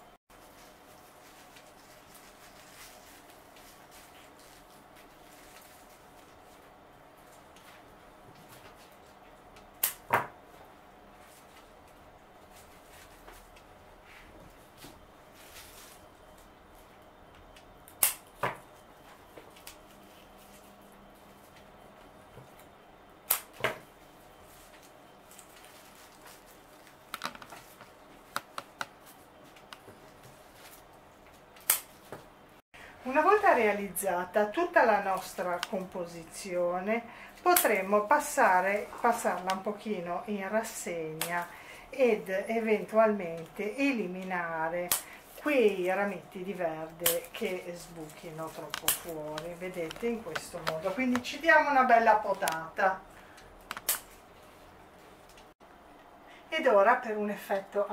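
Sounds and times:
foliage rustling: 0:00.3 - 0:06.6, 0:24.4 - 0:29.2
scissors snipping plant stem: 0:48.5 - 0:51.3.

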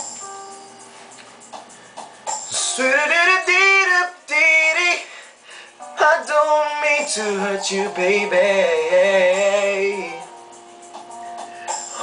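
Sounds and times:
r and b backing track: 0:00.0 - 0:12.0
man singing: 0:02.5 - 0:05.2, 0:05.9 - 0:10.3.

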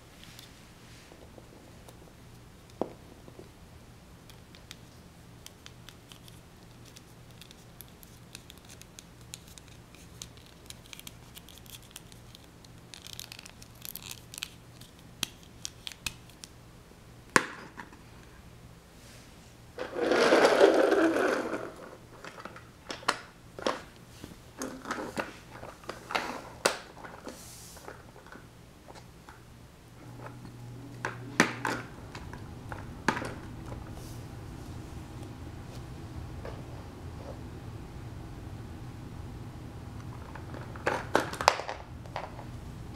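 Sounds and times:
plastic toys clicking and scraping: 0:05.5 - 0:16.5.

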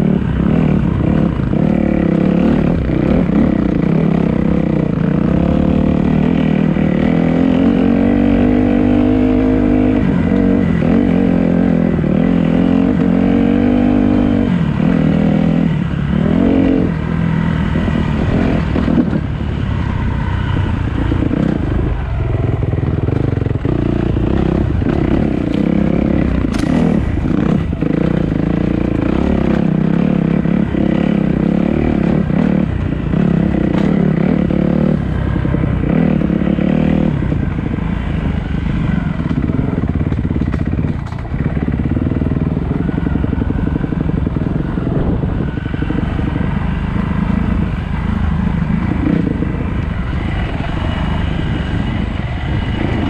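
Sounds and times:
dirt bike engine revving: 0:00.0 - 0:53.0
knocks and clatter from bike: 0:22.9 - 0:29.7, 0:33.6 - 0:34.1, 0:39.2 - 0:43.1.

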